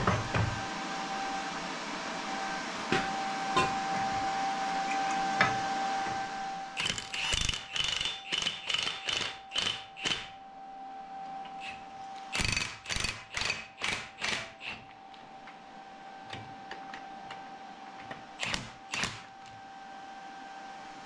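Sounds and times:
impact driver hammering: 6.8 - 10.3.

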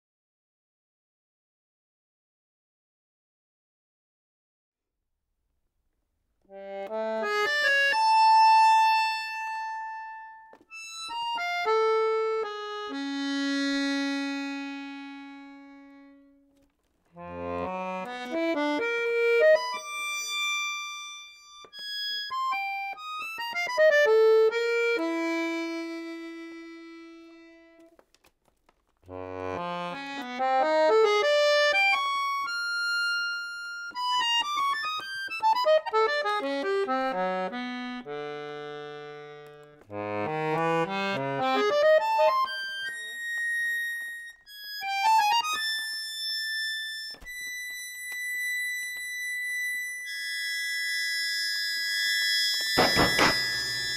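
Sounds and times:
button accordion fast runs: 17.2 - 20.6, 29.1 - 32.0, 34.0 - 43.0, 50.3 - 53.9.

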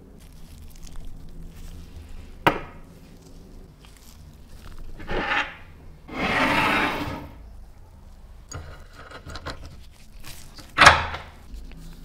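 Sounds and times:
vise scraping on wood: 5.0 - 7.4.

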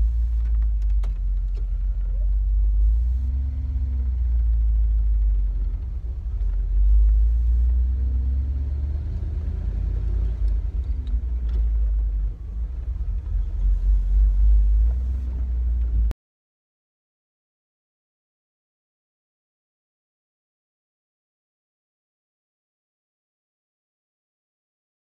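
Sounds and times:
truck engine and road rumble: 0.0 - 16.2.

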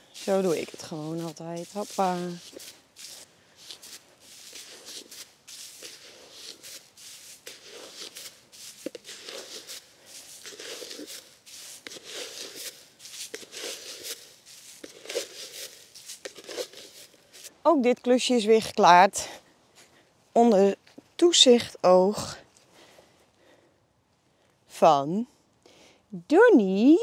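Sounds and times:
powder scattering from scoop: 0.0 - 17.5
footsteps on grass: 0.0 - 17.6.

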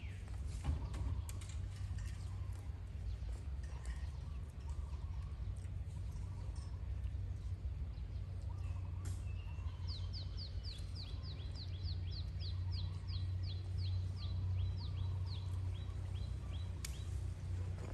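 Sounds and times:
bird chirping: 7.9 - 17.9.

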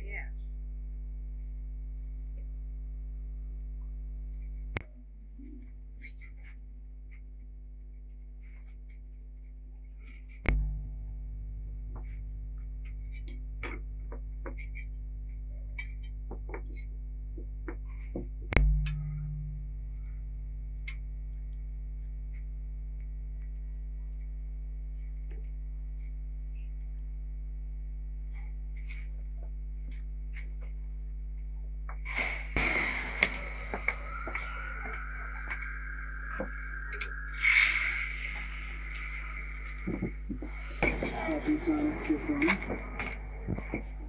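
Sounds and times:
electrical mains hum: 0.0 - 44.0
sharp knock: 32.6 - 37.4.

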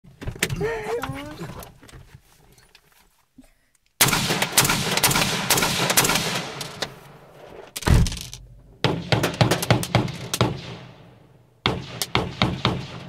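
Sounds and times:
rapid rifle shots: 4.0 - 7.0, 8.8 - 13.0
heavy thump: 7.8 - 9.0.

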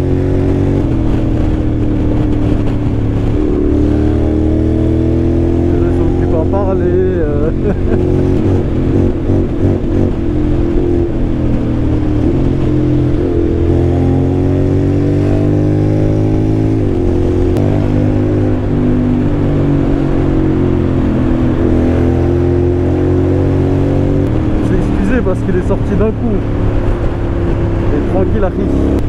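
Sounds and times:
motorcycle engine accelerating: 0.0 - 29.0.

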